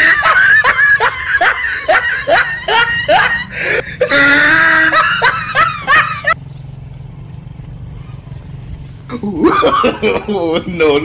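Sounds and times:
person laughing: 0.0 - 6.4, 9.1 - 11.0
low background hum: 0.0 - 11.0.

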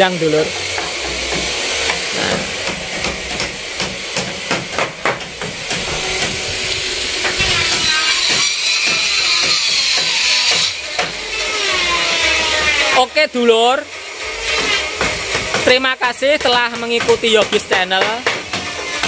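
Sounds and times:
hammer knocking on wood: 0.8 - 6.4, 16.4 - 19.0.

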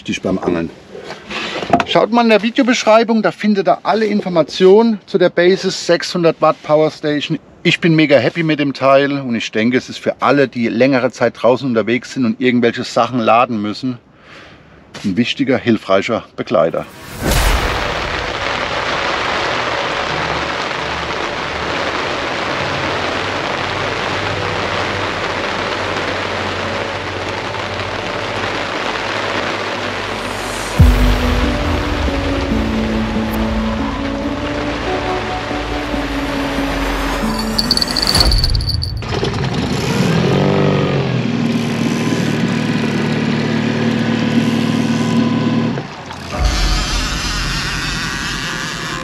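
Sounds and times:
rain on fabric tent: 17.8 - 37.3.

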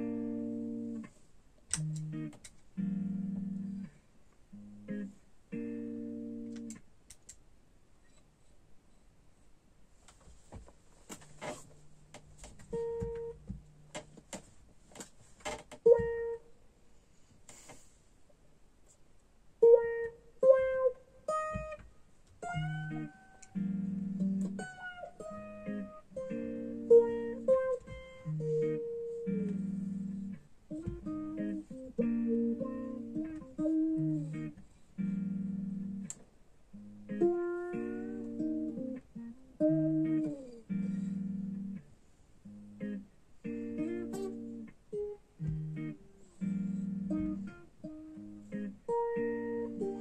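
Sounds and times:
electric guitar picked: 0.0 - 1.1, 1.7 - 6.8, 12.7 - 14.0, 15.8 - 16.4, 19.6 - 50.0.

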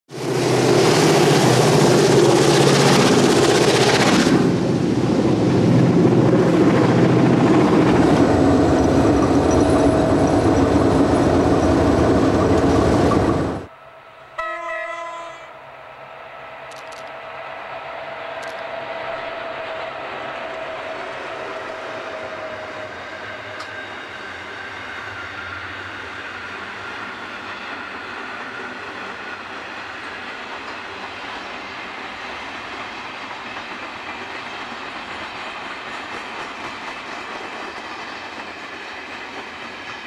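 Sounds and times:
train horn blast: 14.2 - 15.7.

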